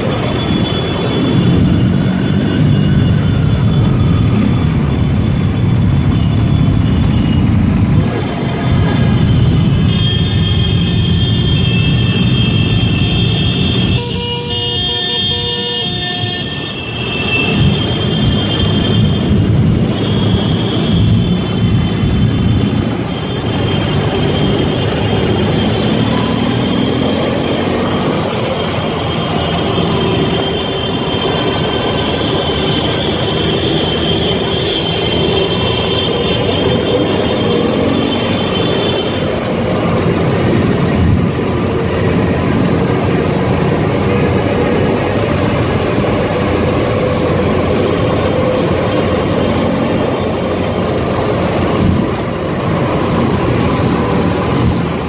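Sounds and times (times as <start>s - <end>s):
motorcycle engines running: 0.0s - 14.1s, 16.6s - 55.0s
vehicle horns: 8.4s - 41.0s.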